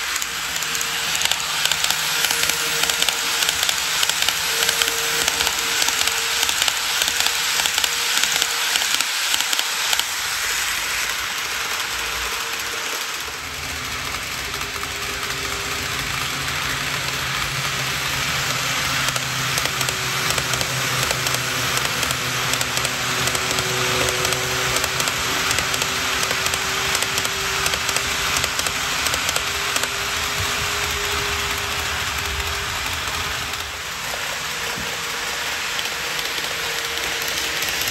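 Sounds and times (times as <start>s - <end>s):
model train wheels rattling on rails: 0.0s - 37.9s
low motor hum: 13.4s - 37.9s.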